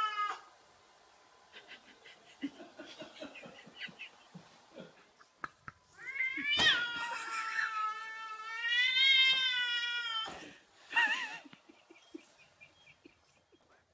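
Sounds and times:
cat yowling: 0.0s - 0.5s, 6.0s - 10.3s.

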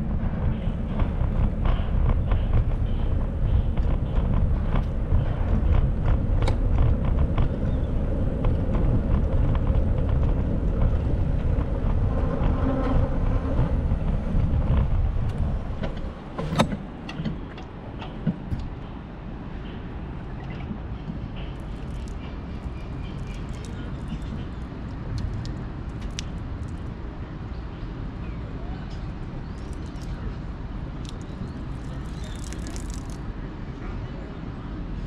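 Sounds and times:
road rumble: 0.0s - 35.0s
bicycle clicks: 21.6s - 26.9s, 29.5s - 30.2s, 31.0s - 33.2s.

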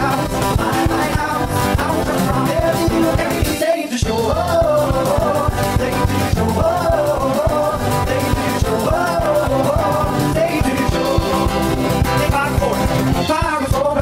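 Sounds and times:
drum kit beat: 0.0s - 14.0s
man singing: 0.0s - 14.0s
strummed acoustic guitar: 0.0s - 14.0s.

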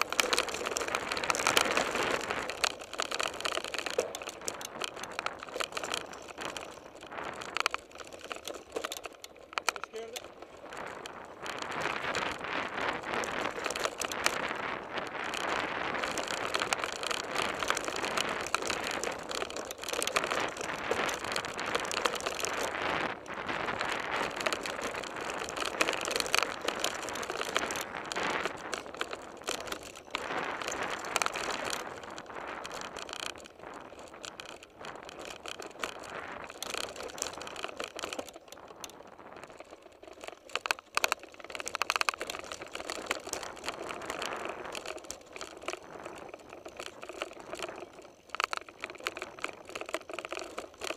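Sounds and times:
bike clattering and rattling: 0.0s - 50.9s
bike tyres crunching on gravel: 0.0s - 50.9s.

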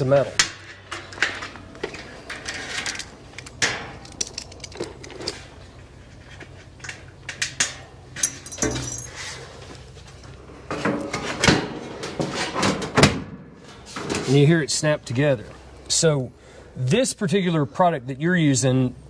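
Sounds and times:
metal panels knocking and clattering: 10.7s - 14.4s.

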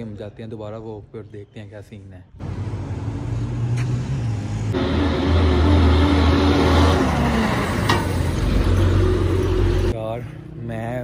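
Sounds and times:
truck engine passing: 2.4s - 10.5s.

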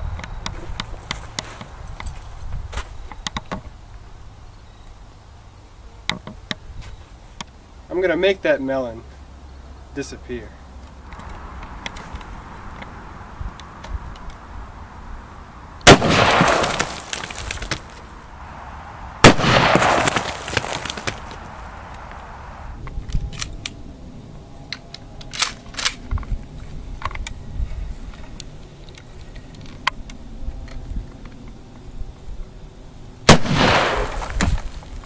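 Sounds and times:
fainter sharp cracks: 15.8s - 18.2s, 19.2s - 22.3s, 33.3s - 35.0s
revolver gunshots with echo: 15.9s - 16.9s, 19.2s - 20.7s, 33.3s - 34.3s.

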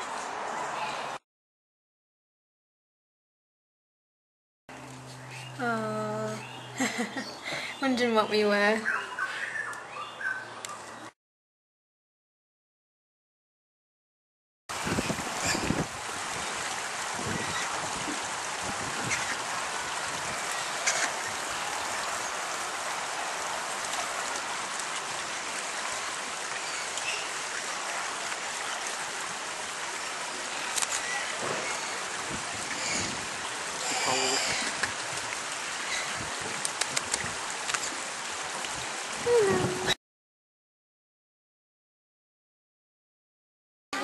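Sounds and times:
running water rushing: 14.7s - 40.0s.

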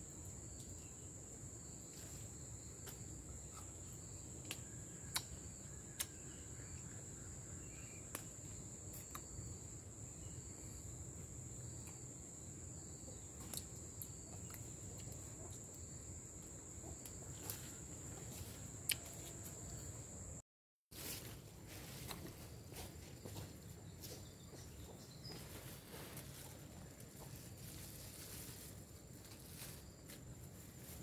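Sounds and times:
insects trilling: 0.0s - 20.4s.

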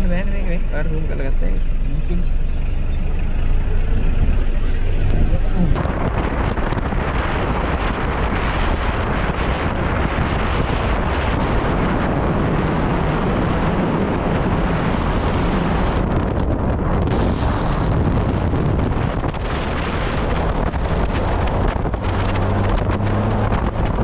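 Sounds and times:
moving vehicle rumble: 0.0s - 24.0s
wind on microphone: 0.0s - 24.0s.

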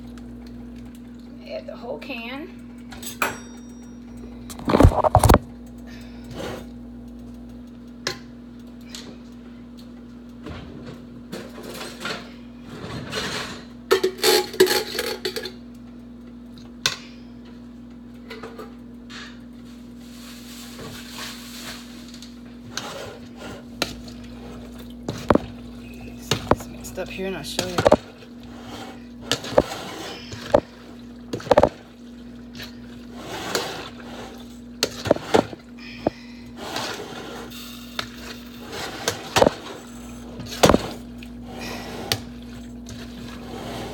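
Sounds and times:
cans and pot clinking and clattering: 11.3s - 15.6s, 20.7s - 37.4s
pouring and scraping: 20.0s - 35.6s, 36.6s - 43.9s
low hum: 33.9s - 36.6s.

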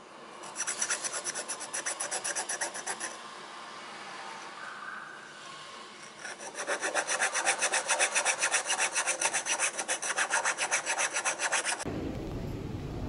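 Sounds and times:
file rasping on plastic: 0.4s - 3.2s, 6.1s - 11.8s.

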